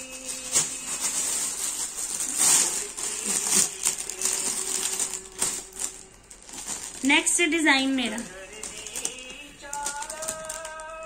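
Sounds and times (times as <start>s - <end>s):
fabric rustling and crinkling: 0.0s - 11.0s.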